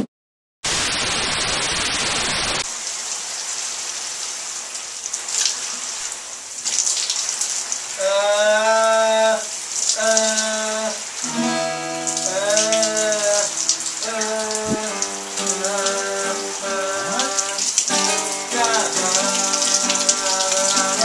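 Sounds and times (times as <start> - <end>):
shower water spraying: 0.7 - 8.0, 9.5 - 21.0
man singing a held note: 12.2 - 17.6, 18.5 - 21.0.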